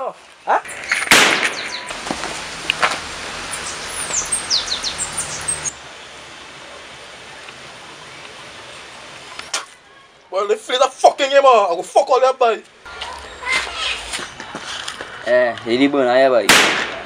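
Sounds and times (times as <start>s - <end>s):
outdoor background noise: 0.0s - 17.0s
birds chirping: 0.2s - 10.0s
pistol shot: 1.0s - 1.9s, 16.5s - 17.0s.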